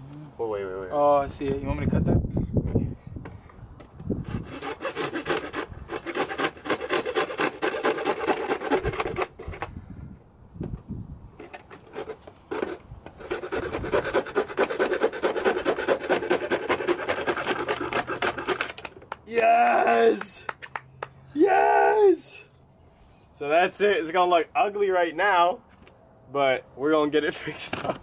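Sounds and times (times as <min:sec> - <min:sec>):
handsaw cutting plastic: 0:04.2 - 0:09.7, 0:11.4 - 0:19.1.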